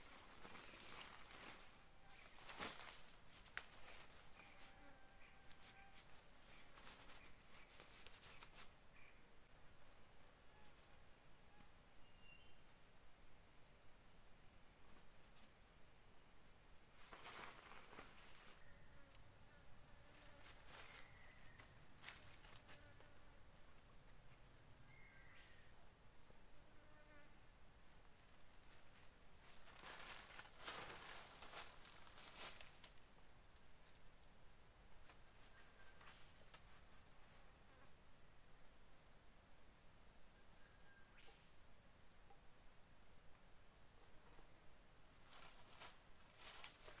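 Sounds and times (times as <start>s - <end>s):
high-pitched insect drone: 0.0s - 3.1s
faint insect buzzing: 0.0s - 47.0s
flysheet rustling: 0.2s - 4.4s, 17.0s - 18.6s
light clicks and rustles: 5.6s - 8.8s.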